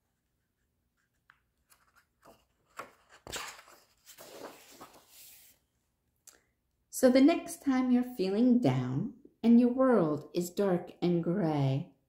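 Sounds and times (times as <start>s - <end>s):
book page turning: 1.0s - 5.6s.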